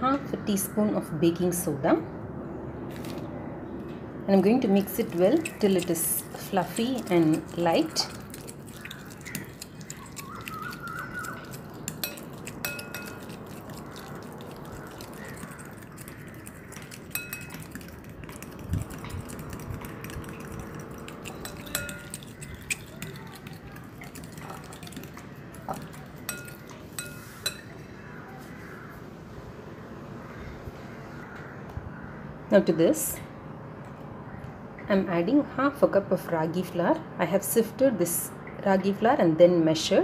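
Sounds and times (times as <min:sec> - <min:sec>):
fork scraping a glass bowl: 0:05.0 - 0:14.2, 0:15.0 - 0:27.8.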